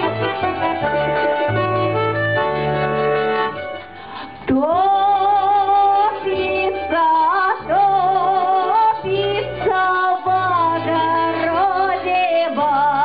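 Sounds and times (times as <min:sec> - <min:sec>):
instrumental accompaniment: 0:00.0 - 0:13.0
woman singing: 0:04.5 - 0:13.0.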